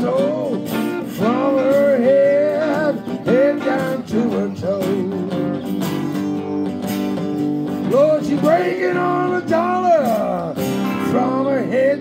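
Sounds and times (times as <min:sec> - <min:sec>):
acoustic guitars strumming chords: 0:00.0 - 0:12.0
bending guitar melody: 0:00.0 - 0:12.0.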